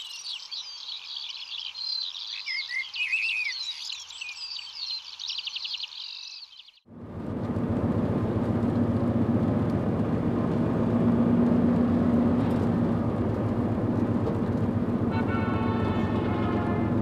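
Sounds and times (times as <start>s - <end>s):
car engine and tyre noise: 6.9s - 17.0s.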